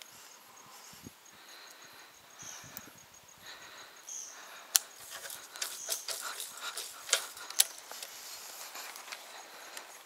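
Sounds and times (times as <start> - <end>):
rustling on creek bank: 4.5 - 10.0.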